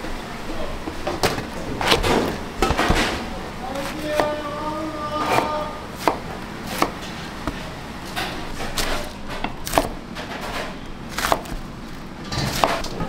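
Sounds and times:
kitchen knocks and clacks: 0.9 - 3.3.

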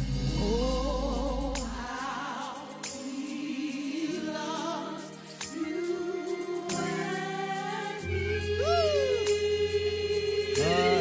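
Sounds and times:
gospel choir singing: 0.0 - 11.0
sustained instrumental backing: 3.0 - 11.0.

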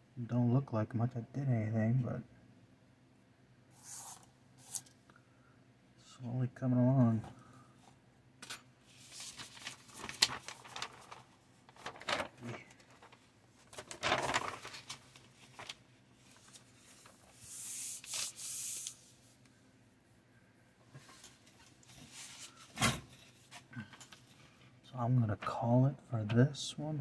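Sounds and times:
paper rustling and sliding: 8.9 - 19.4, 21.0 - 24.3.

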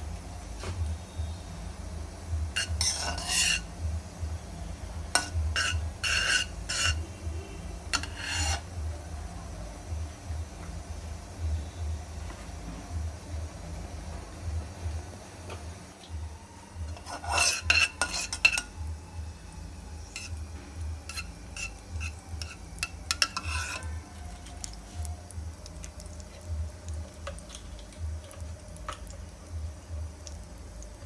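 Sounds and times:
metal spatula scraping a pan: 2.6 - 3.7, 5.1 - 7.1, 7.9 - 8.7, 16.9 - 18.8, 20.0 - 20.4, 21.0 - 24.5
low pulsing hum: 16.1 - 31.0.

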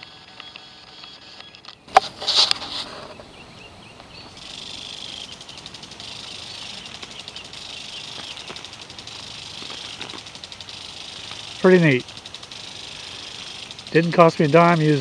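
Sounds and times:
water sprinkler spraying and ticking: 4.0 - 15.0.

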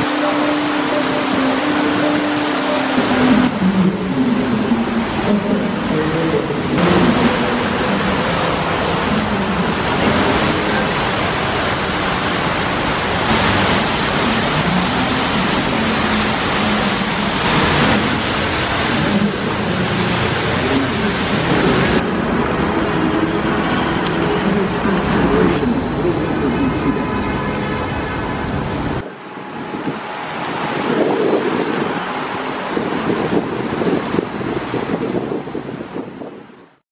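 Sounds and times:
loud steady hiss: 0.0 - 22.0.

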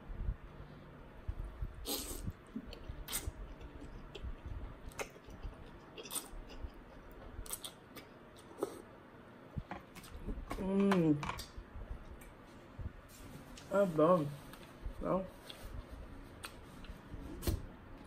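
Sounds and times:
person slurping noodles: 1.8 - 3.4.

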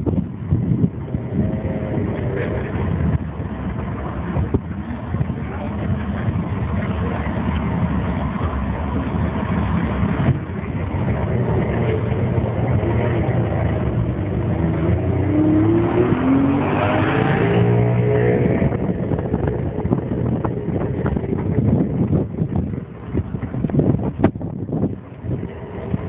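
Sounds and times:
car driving past: 11.0 - 19.6.

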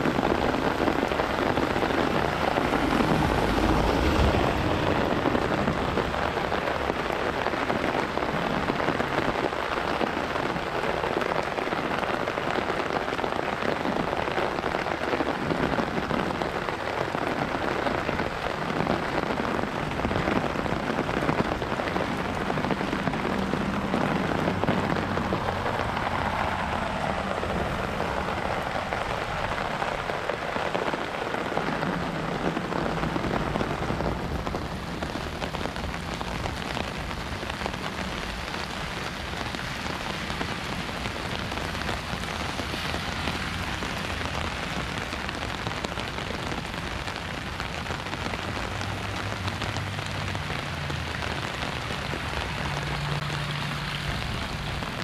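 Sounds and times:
rain drumming on umbrella: 0.0 - 55.0
rain splashing on pavement: 0.0 - 55.0.

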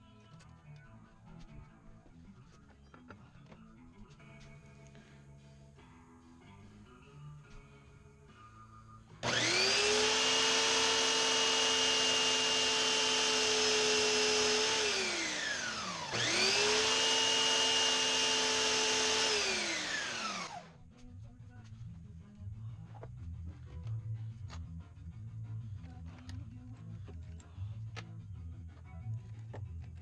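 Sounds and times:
belt sander motor whine: 9.2 - 20.7.

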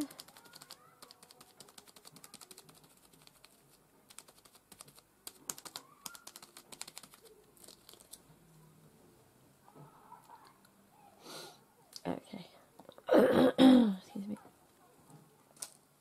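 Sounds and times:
fingertips rubbing stencil clicking: 0.0 - 7.3.

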